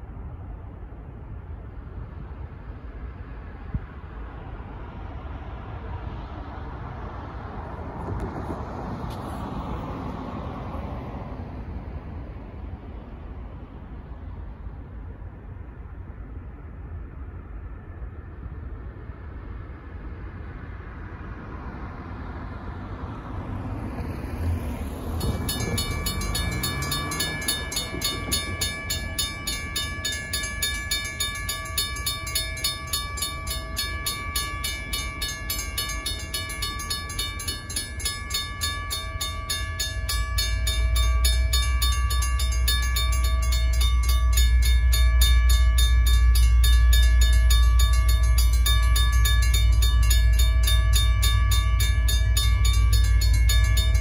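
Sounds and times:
diesel locomotives rumbling: 0:00.0 - 0:54.0
car passing: 0:03.2 - 0:14.7, 0:20.1 - 0:54.0
railroad crossing warning bells: 0:07.2 - 0:12.4, 0:23.9 - 0:54.0.

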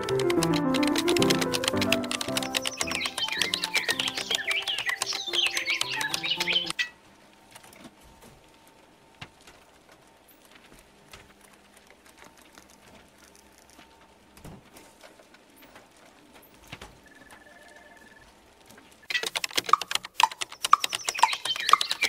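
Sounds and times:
music: 0:00.0 - 0:06.7
typing on computer keyboard: 0:00.0 - 0:06.8, 0:19.1 - 0:22.0.

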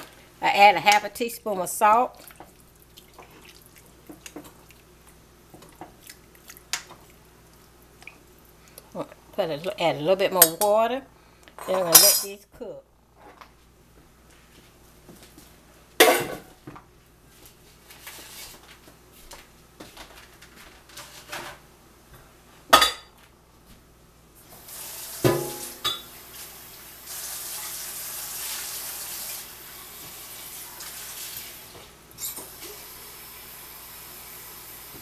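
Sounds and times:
metal cookware clanking: 0:10.4 - 0:10.8, 0:11.6 - 0:12.4, 0:25.3 - 0:26.1.

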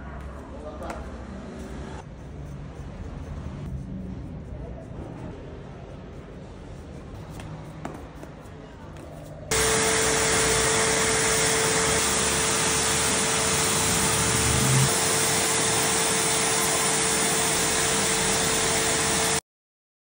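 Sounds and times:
paint sprayer turbine running: 0:09.5 - 0:19.4.

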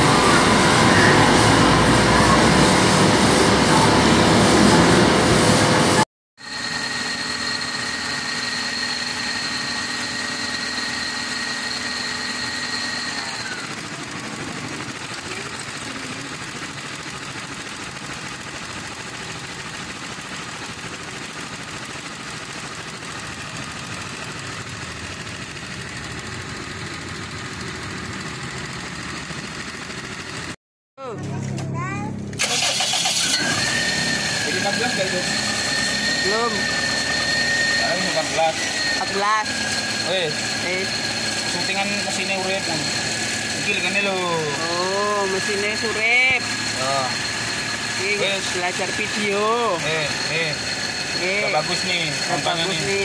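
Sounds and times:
high whine gliding down: 0:00.0 - 0:13.6, 0:33.4 - 0:53.0.

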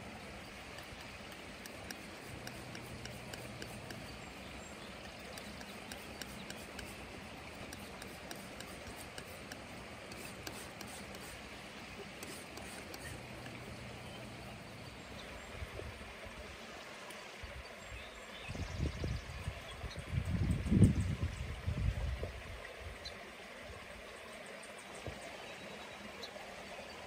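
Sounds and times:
steady background hiss: 0:00.0 - 0:19.7
palette knife scraping paint: 0:01.7 - 0:04.2, 0:05.4 - 0:07.0, 0:07.7 - 0:11.4, 0:12.2 - 0:13.3.

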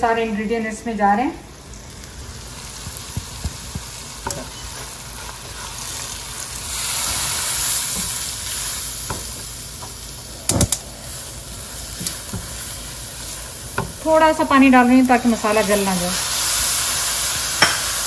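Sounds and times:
food sizzling in oil: 0:01.4 - 0:18.0
spoon stirring and scraping pan: 0:02.8 - 0:10.0.

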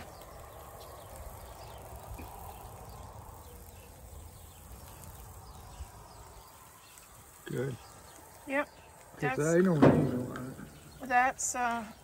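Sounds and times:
faint insect chirping: 0:00.0 - 0:12.0.

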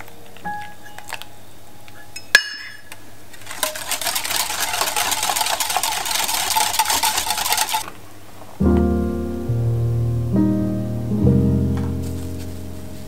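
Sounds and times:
whisk scraping and rattling in bowl: 0:03.4 - 0:07.8
whisk clinking on bowl: 0:03.5 - 0:07.8.

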